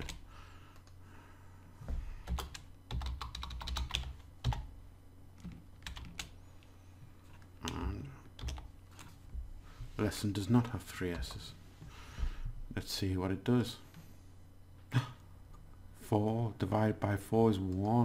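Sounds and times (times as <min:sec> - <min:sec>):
keyboard typing clicks: 0:02.2 - 0:04.7, 0:05.4 - 0:06.3.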